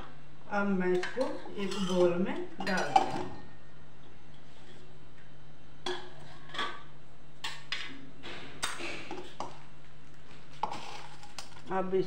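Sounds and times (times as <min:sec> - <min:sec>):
metal dishes clinking: 0:01.0 - 0:03.4.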